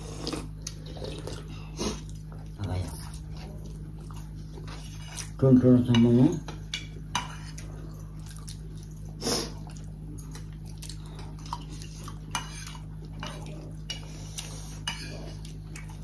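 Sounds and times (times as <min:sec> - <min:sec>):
steady low hum: 0:00.0 - 0:16.0
cutlery clinking on plates: 0:04.6 - 0:07.7.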